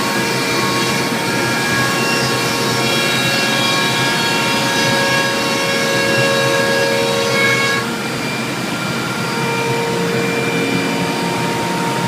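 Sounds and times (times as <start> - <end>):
router high whine: 0.0 - 12.0.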